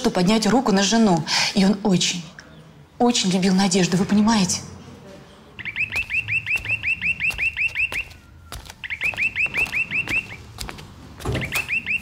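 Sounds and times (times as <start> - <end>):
intercom chirping tone: 5.6 - 10.5, 11.4 - 12.0
footsteps: 5.7 - 12.0.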